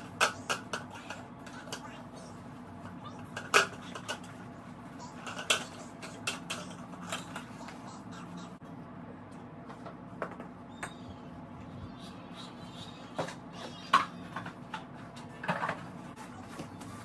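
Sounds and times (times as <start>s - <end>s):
steady low hum: 0.0s - 17.0s
plastic toys knocking and clattering: 0.1s - 1.9s, 3.2s - 4.4s.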